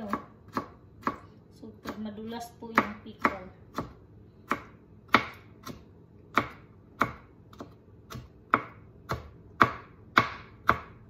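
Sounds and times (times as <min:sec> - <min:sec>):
knife chopping on plastic board: 0:00.0 - 0:11.0.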